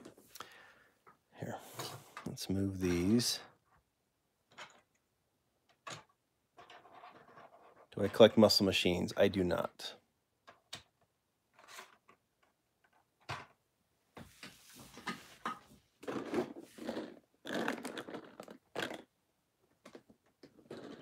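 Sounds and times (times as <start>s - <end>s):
plastic cases and toy cars clattering: 10.4s - 13.6s.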